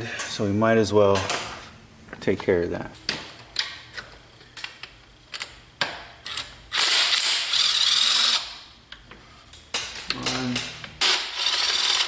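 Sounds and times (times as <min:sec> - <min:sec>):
cordless drill spinning: 0:06.8 - 0:08.5, 0:11.0 - 0:12.0.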